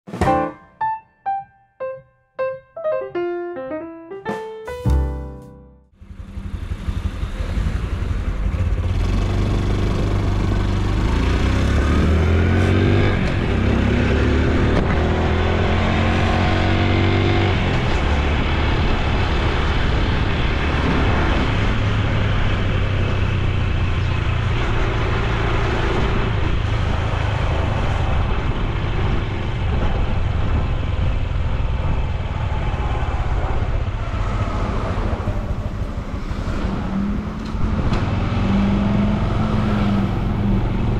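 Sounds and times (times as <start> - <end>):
motorcycle engine accelerating: 5.9 - 32.0.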